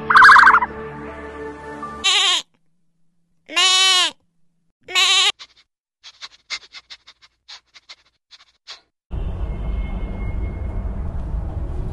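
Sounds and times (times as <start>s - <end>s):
young goat bleating: 2.0s - 2.5s, 3.5s - 4.2s, 4.8s - 5.4s.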